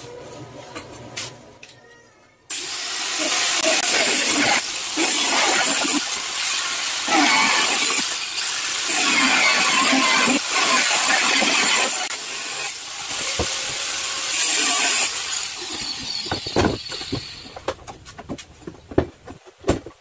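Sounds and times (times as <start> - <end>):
angle grinder cutting plastic: 2.5 - 17.7.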